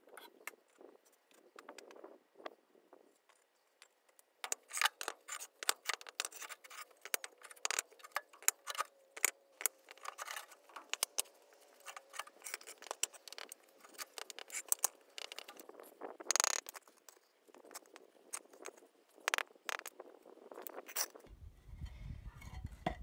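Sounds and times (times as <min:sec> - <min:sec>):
concrete pavers clicking and scraping: 0:03.0 - 0:21.3.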